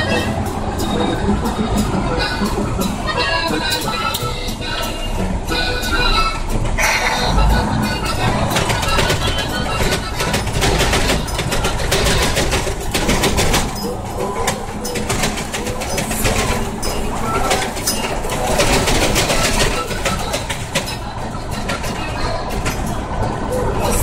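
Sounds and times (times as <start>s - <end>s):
truck engine and road rumble: 0.0s - 24.0s
cab rattling and jolting: 6.5s - 24.0s.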